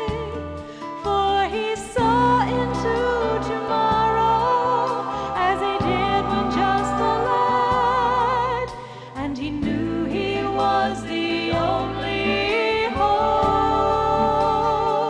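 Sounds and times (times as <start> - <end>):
person singing with vibrato: 1.0 - 15.0.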